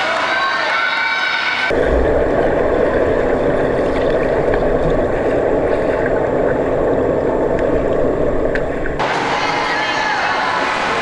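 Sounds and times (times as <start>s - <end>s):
underwater churning water and bubbles: 1.7s - 9.1s.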